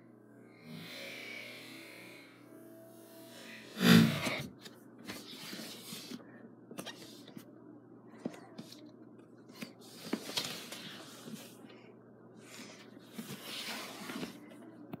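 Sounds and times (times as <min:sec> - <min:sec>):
breathy hisses: 0:00.5 - 0:04.3.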